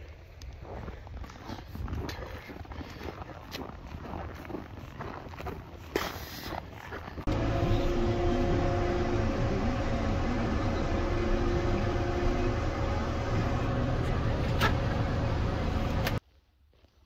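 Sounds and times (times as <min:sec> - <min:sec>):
tractor engine running: 0:07.2 - 0:16.2.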